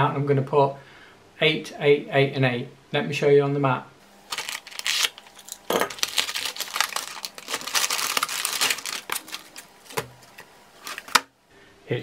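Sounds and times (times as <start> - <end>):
packaging crinkling and rustling: 4.2 - 11.3
contents clicking: 4.3 - 11.3.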